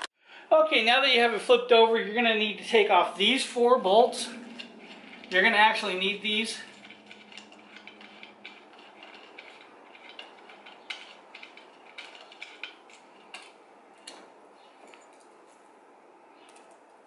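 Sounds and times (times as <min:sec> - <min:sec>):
metallic clicks of bolts unscrewed: 0:06.7 - 0:15.3.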